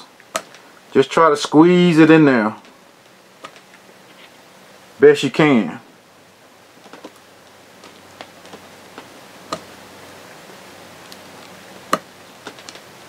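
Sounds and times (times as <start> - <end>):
small clicks and rustling: 2.6 - 4.4, 6.8 - 9.7, 12.4 - 12.9.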